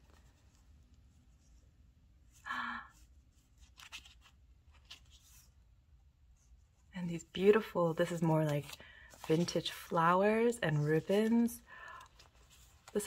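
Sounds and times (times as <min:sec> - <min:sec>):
sticker sheets rustling: 0:03.4 - 0:05.6, 0:06.4 - 0:13.0.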